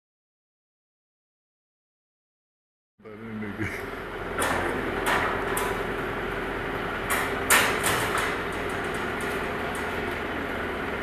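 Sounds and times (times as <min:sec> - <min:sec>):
machine motor humming: 0:03.0 - 0:11.0.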